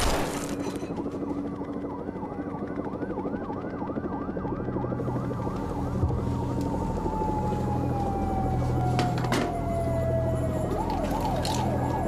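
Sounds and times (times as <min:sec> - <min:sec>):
police siren yelping: 0:01.0 - 0:12.0.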